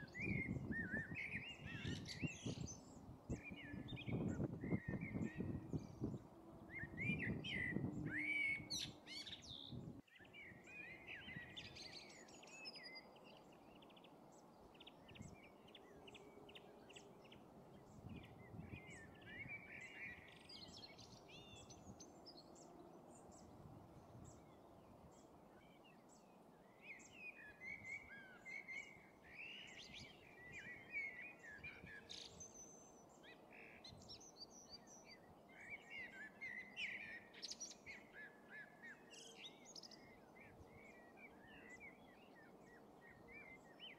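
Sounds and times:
small songbirds chirping: 0:00.0 - 0:43.9.

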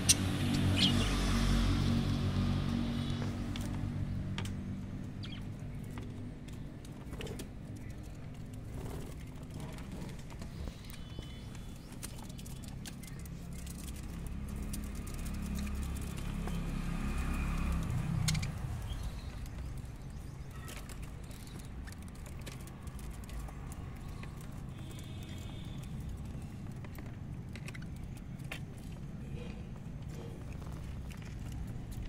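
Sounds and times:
budgerigars chirping: 0:00.0 - 0:01.1.

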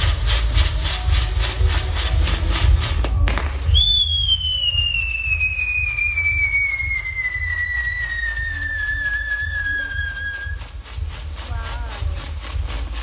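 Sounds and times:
firework crack: 0:00.0 - 0:13.0
sputtering hiss of sparks: 0:00.0 - 0:13.0
firework whistle falling in pitch: 0:02.0 - 0:10.8.

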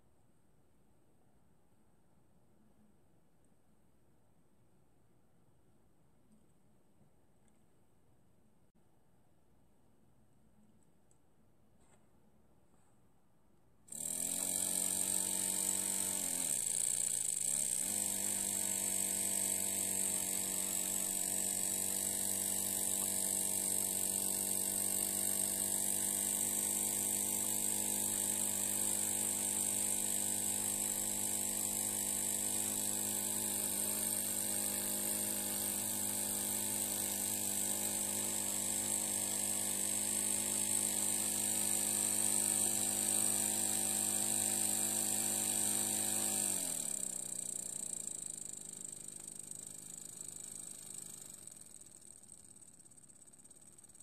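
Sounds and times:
small steam engine buzzing: 0:13.9 - 0:54.0.

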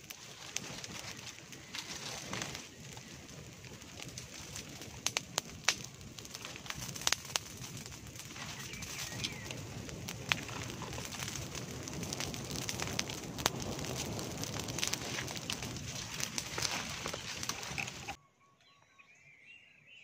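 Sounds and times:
fire burning with crackles: 0:00.0 - 0:18.2.

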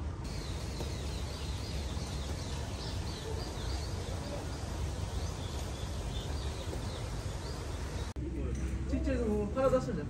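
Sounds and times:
small birds chirping: 0:00.2 - 0:08.2.

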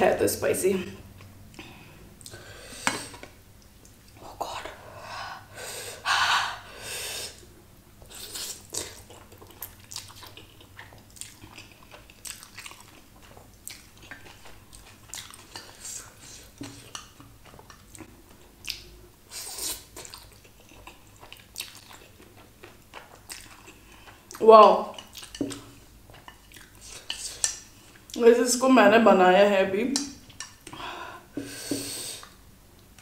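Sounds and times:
person chewing noodles: 0:07.2 - 0:28.2.

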